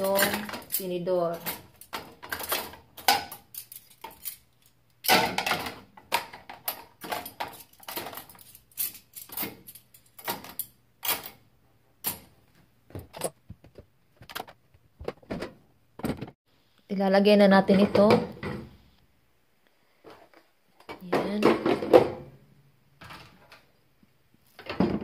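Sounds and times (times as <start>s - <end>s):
metal forks clinking: 0.0s - 4.8s, 7.0s - 11.4s.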